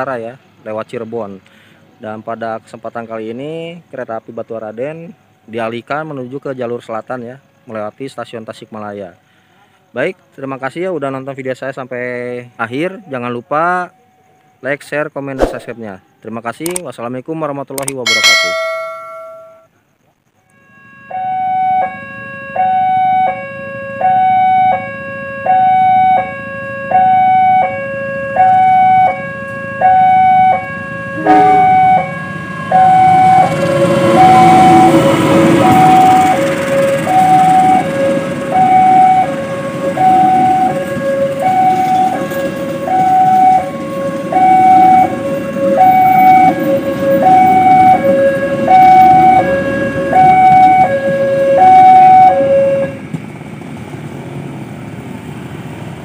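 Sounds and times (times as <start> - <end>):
two-tone crossing alarm: 18.1 - 19.7, 20.5 - 53.1
train wheels rumbling past: 31.0 - 56.0.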